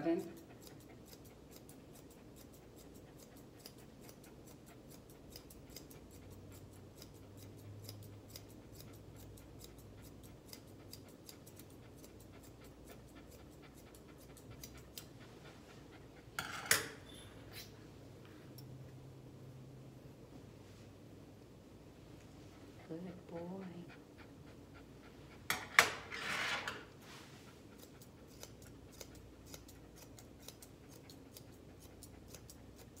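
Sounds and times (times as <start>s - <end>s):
grooming shears snipping: 0.1s - 15.3s, 27.7s - 33.0s.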